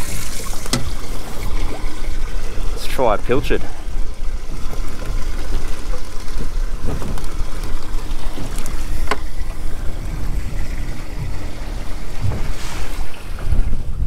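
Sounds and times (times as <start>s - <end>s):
water washing around boat: 0.0s - 14.0s
wind buffeting microphone: 0.0s - 14.0s.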